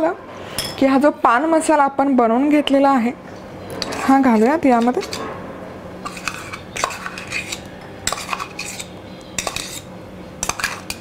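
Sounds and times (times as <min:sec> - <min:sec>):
metal spoon scraping steel bowl: 0:03.7 - 0:05.4, 0:06.0 - 0:11.0.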